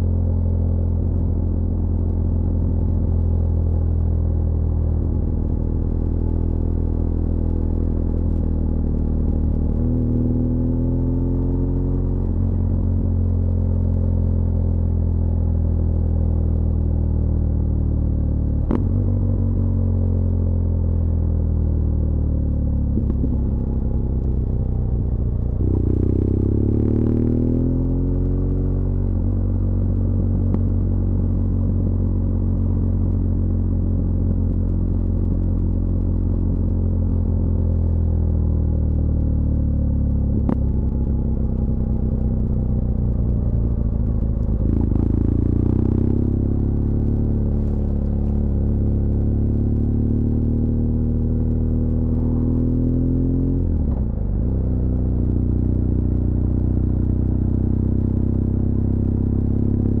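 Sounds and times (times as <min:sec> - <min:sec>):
motorcycle engine running: 0:18.8 - 1:00.0.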